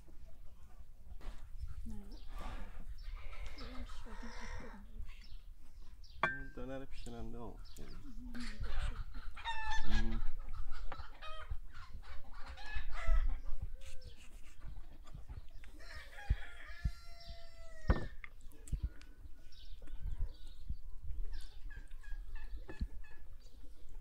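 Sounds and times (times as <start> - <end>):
chickens clucking: 0.0 - 24.0
rooster crowing: 15.8 - 18.1.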